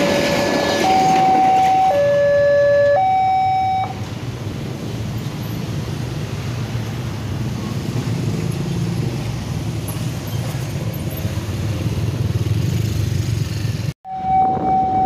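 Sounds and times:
motorcycle and car engines: 0:03.7 - 0:15.0.

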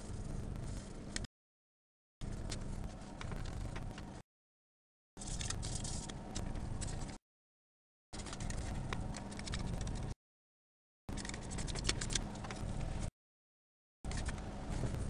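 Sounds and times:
steady low hum: 0:00.0 - 0:01.3, 0:14.1 - 0:15.0.

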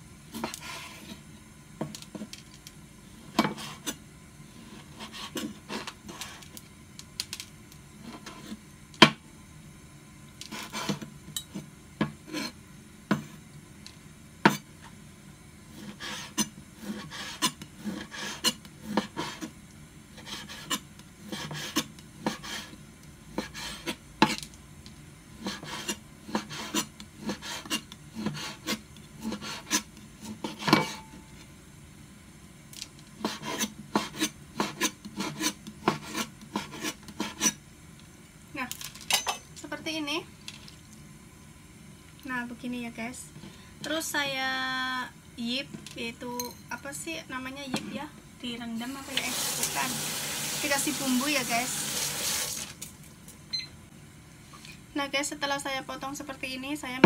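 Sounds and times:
knife scraping strokes: 0:00.3 - 0:01.2, 0:03.4 - 0:04.0, 0:04.6 - 0:06.5, 0:10.5 - 0:11.1, 0:12.2 - 0:12.6, 0:15.7 - 0:19.5, 0:20.2 - 0:22.8, 0:23.4 - 0:24.4, 0:25.4 - 0:31.2, 0:33.2 - 0:37.6
knife striking cutting board: 0:30.5 - 0:31.2.

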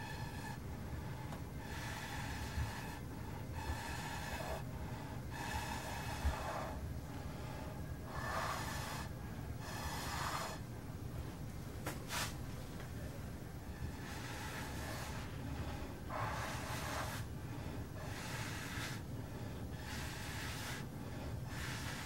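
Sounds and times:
person blowing short puffs: 0:12.1 - 0:12.4.

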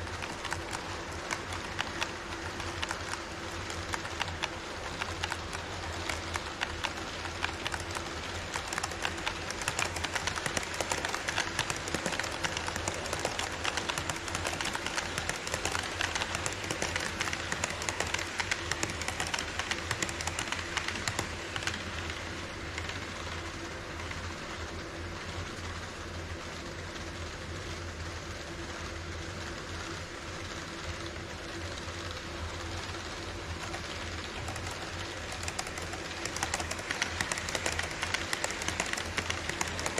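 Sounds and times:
model train wheels clattering: 0:00.0 - 0:23.4, 0:32.4 - 0:39.9.

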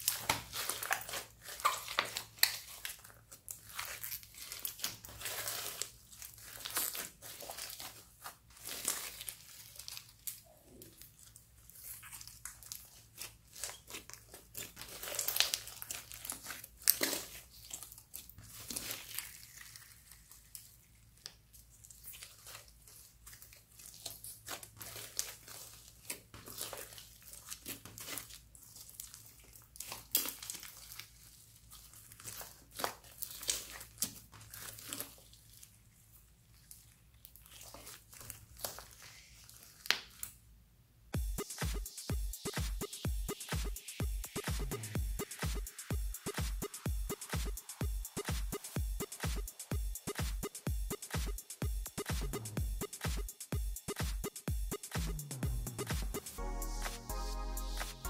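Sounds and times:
slime crackling squishes: 0:00.0 - 0:40.4.

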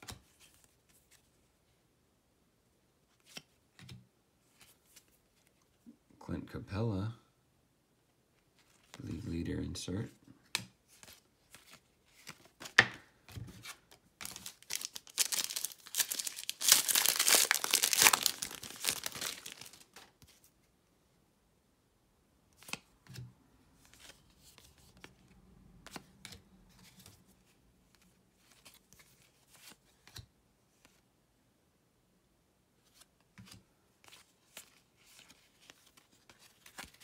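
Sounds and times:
plastic wrapper crinkling and tearing: 0:14.2 - 0:20.1.

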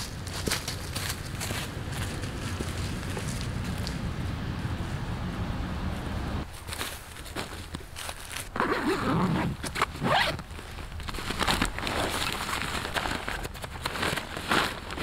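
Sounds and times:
zipper rasping open: 0:08.4 - 0:10.4.

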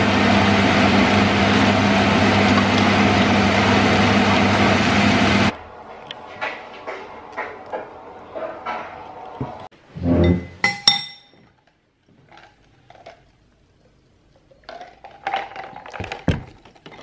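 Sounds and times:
cutlery clinking against bowl: 0:10.6 - 0:11.4.

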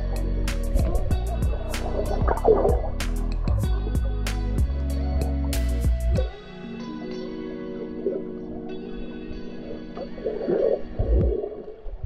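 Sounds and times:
music of long held chords: 0:00.0 - 0:11.8
underwater gurgling: 0:00.8 - 0:04.2, 0:07.6 - 0:12.0.

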